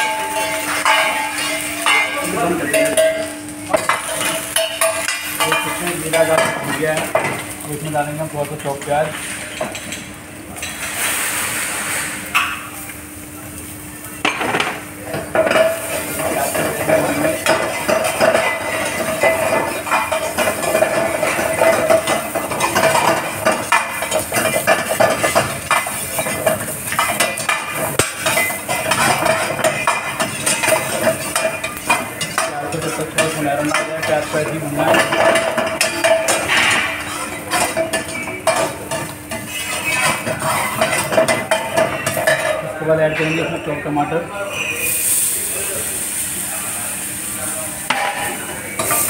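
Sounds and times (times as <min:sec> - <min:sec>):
onion sizzling in hot oil: 0:14.8 - 0:43.1, 0:44.6 - 0:49.0.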